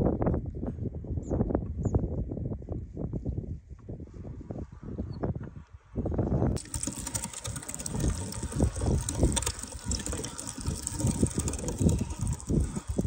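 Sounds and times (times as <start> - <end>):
hand-cranked meat grinder: 6.6 - 13.0.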